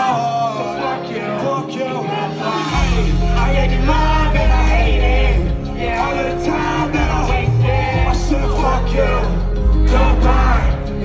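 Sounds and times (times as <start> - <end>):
live rock music: 0.0 - 11.0
person singing: 0.0 - 11.0
heavy low bass: 2.8 - 11.0.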